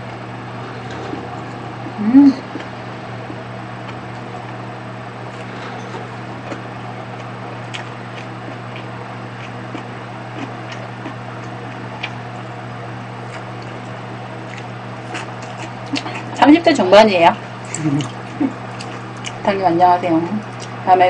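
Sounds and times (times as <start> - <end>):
steady low hum: 0.0 - 21.0
mouth clicks and smacks chewing: 14.5 - 16.4, 17.6 - 19.4.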